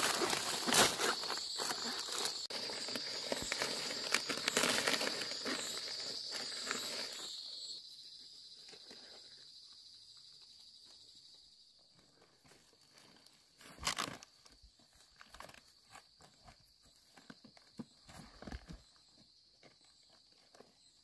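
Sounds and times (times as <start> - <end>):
palm leaves rustling and crackling: 0.0 - 7.4
high insect chirring: 0.0 - 11.7.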